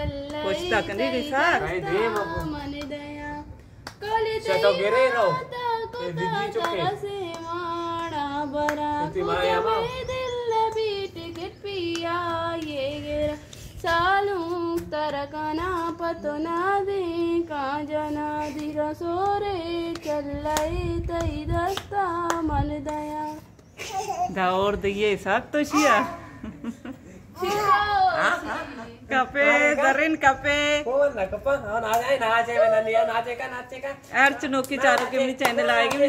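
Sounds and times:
woman singing: 0.0 - 23.6
hands clapping: 6.6 - 7.4, 10.7 - 12.8, 19.2 - 23.0, 34.6 - 36.0.

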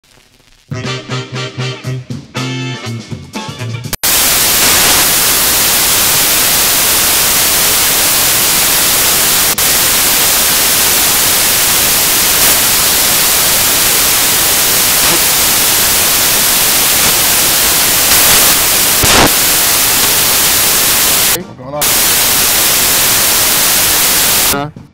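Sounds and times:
static hiss: 0.0 - 0.7, 4.0 - 24.6
swing music: 0.7 - 4.0.

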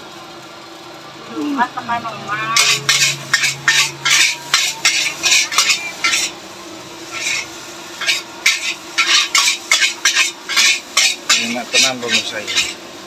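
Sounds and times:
metal spatula scraping a wok: 2.6 - 6.4, 7.0 - 12.8.

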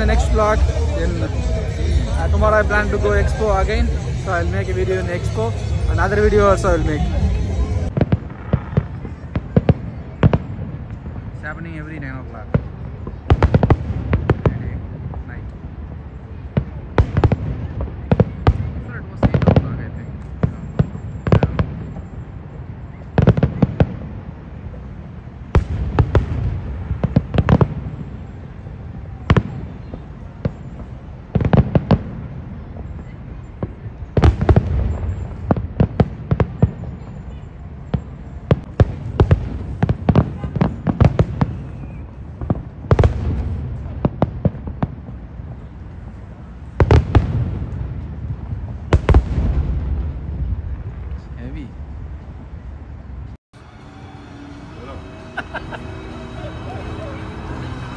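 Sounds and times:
low rumble: 0.0 - 8.0, 53.6 - 57.9
fireworks bangs: 0.0 - 15.4, 16.3 - 22.5, 25.5 - 37.1, 37.9 - 45.2, 53.6 - 57.9.

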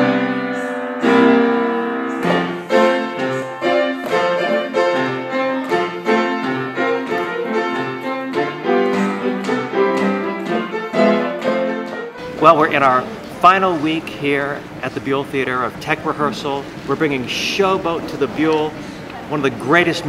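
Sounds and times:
piano playing a lively tune: 0.0 - 14.8.

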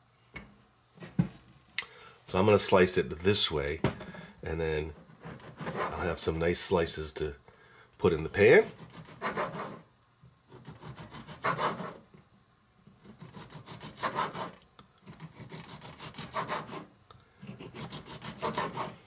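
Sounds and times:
knife sawing through tomato: 5.2 - 6.1, 8.6 - 9.8, 10.5 - 12.0, 13.0 - 19.0.

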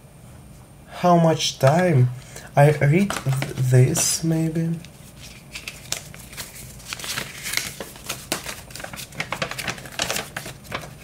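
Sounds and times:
paper crinkling and rustling: 3.0 - 11.0.

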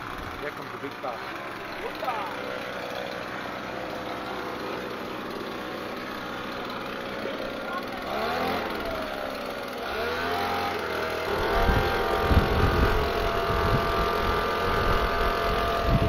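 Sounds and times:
car engine revving: 0.0 - 15.9
wind buffeting microphone: 11.4 - 16.0.

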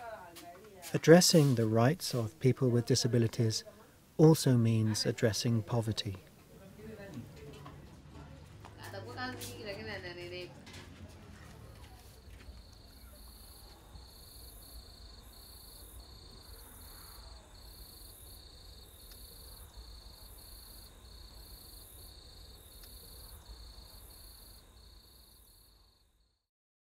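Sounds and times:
insects chirping: 12.1 - 26.3.

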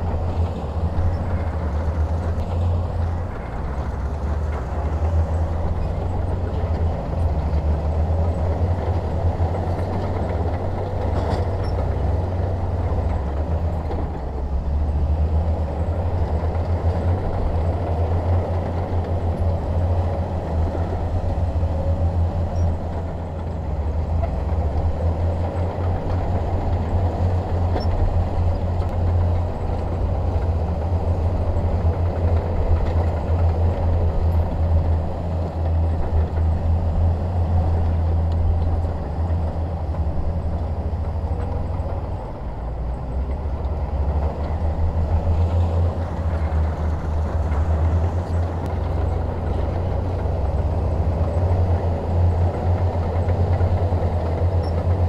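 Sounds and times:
heavy diesel engine droning: 0.0 - 55.0.

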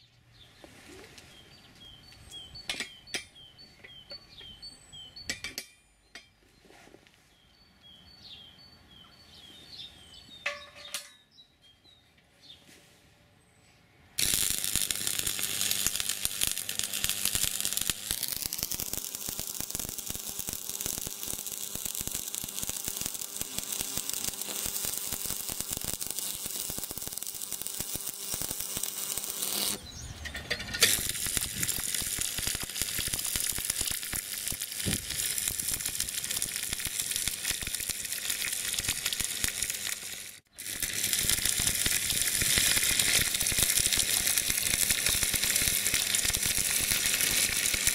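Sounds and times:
welding arc crackling: 14.2 - 29.8, 30.8 - 47.9.

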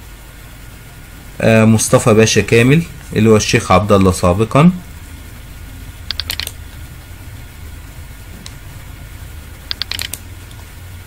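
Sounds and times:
low background hum: 0.0 - 11.0
computer key clicks: 6.1 - 6.6, 9.7 - 10.2.

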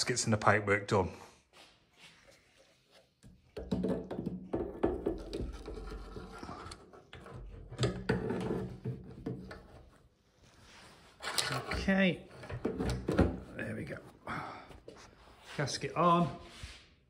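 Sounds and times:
clicks knocks and scraping of hand work: 2.1 - 10.1, 11.2 - 13.4.

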